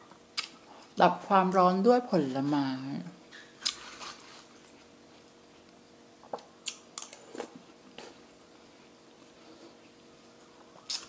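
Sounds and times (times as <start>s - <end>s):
faint chewing: 3.3s - 8.3s, 9.0s - 11.0s.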